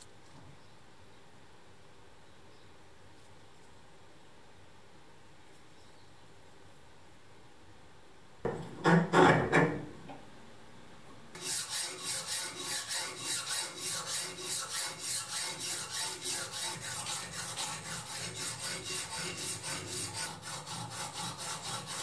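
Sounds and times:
file rasping on steel: 11.4s - 22.0s.

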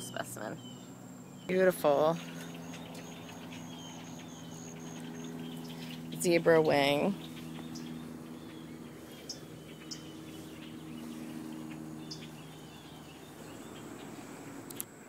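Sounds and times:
low hum: 0.0s - 15.0s
bird chirps: 0.1s - 14.8s
sharp light ticks: 14.6s - 14.9s.

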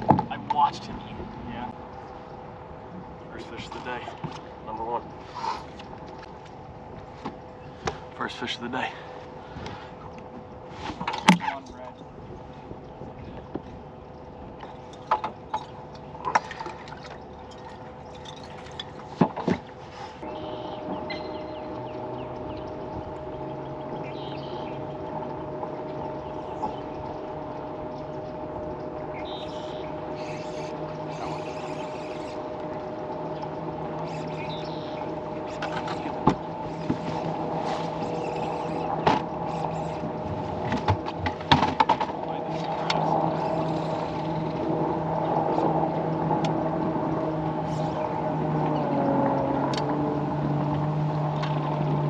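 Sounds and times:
sharp knocks on boat: 0.0s - 1.3s, 19.0s - 19.7s, 26.5s - 26.9s, 35.6s - 37.8s, 39.0s - 39.4s, 40.0s - 43.0s
motor hum: 0.0s - 52.0s
water trickling and splashing: 0.0s - 52.0s
knocks on boat deck: 36.2s - 37.1s.

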